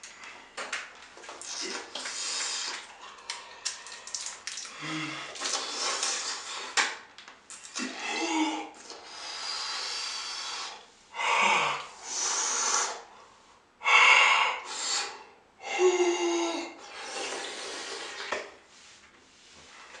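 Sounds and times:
hissing through pursed lips: 0:01.4 - 0:03.9, 0:04.6 - 0:06.9, 0:07.5 - 0:13.5, 0:14.1 - 0:15.4
person breathing hard: 0:04.7 - 0:06.5, 0:07.8 - 0:18.2.

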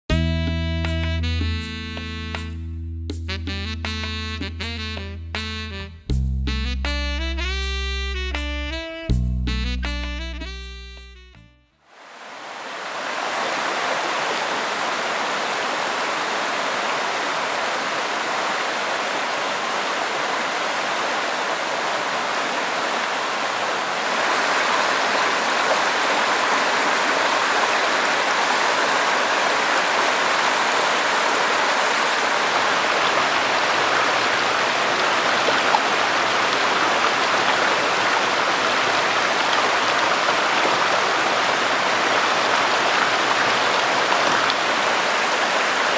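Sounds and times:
cascade pouring into pool: 0:11.9 - 0:45.9
stream rushing over rocks: 0:11.9 - 0:45.9.

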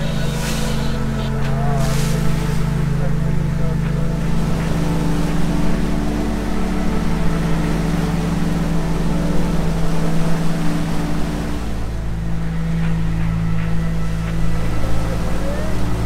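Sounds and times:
outboard motors droning: 0:00.0 - 0:16.0
rushing boat wake: 0:00.0 - 0:16.0.

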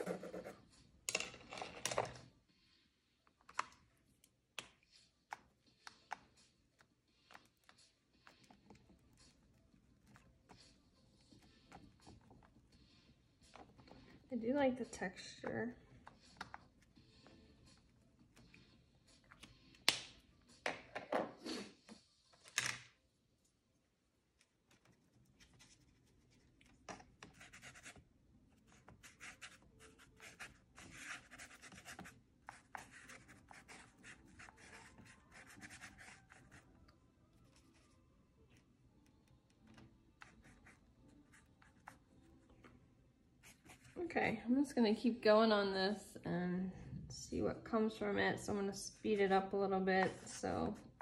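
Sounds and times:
paintbrush scrubbing on paper: 0:28.7 - 0:36.7.

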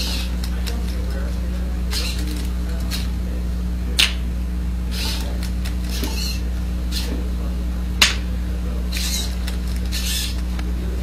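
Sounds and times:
robot arm motors whirring: 0:00.0 - 0:03.2, 0:04.9 - 0:07.3, 0:08.8 - 0:11.0
electrical hum: 0:00.0 - 0:11.0.

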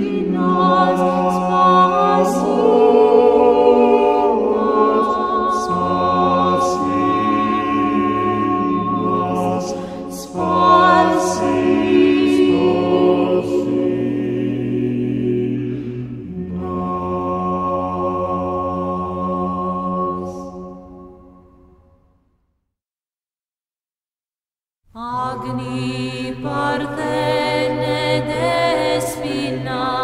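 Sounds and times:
a cappella choir chanting: 0:00.0 - 0:21.9, 0:25.0 - 0:30.0.

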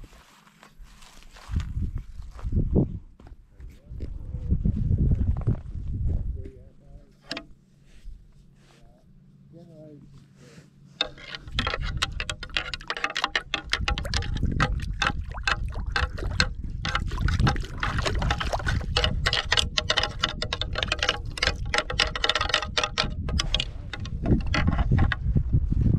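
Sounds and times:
antlers clacking together: 0:07.2 - 0:07.6, 0:11.0 - 0:25.2
splashing in shallow water: 0:13.0 - 0:20.4.

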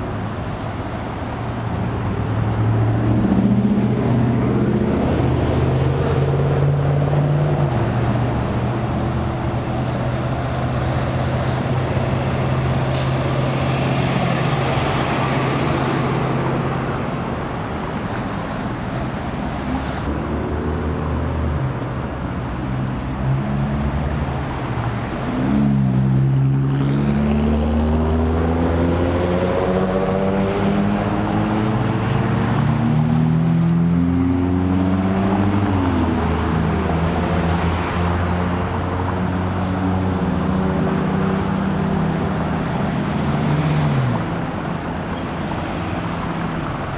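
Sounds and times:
heavy vehicle engines running: 0:00.0 - 0:46.9
engine revving up: 0:25.3 - 0:44.4.

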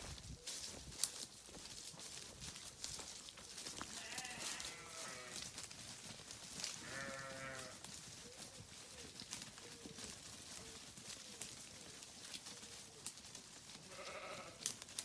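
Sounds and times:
sheep bleating: 0:03.8 - 0:05.5, 0:06.8 - 0:07.9, 0:13.8 - 0:14.7.

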